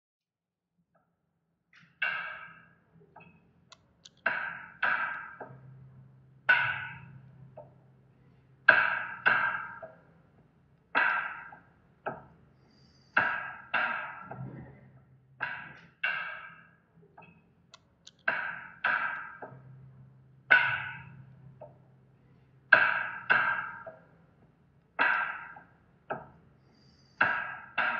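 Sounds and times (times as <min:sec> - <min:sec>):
sharply struck ringing notes: 0:04.2 - 0:07.8, 0:08.7 - 0:10.0.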